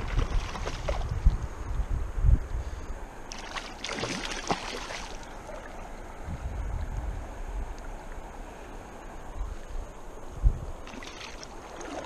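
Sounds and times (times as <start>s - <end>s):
river current rushing: 2.9s - 12.0s
fish thrashing and splashing: 3.3s - 5.6s.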